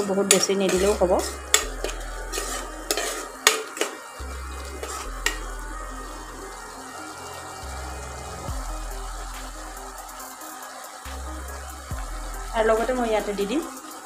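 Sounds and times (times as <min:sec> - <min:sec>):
faint sizzle: 0:00.0 - 0:14.0
spoon scraping a pot: 0:00.3 - 0:04.1, 0:04.8 - 0:05.4.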